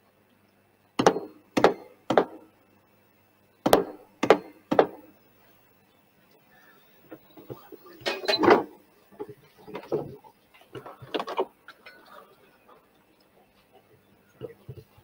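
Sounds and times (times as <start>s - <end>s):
hammer knocking on wooden door: 3.7s - 5.0s.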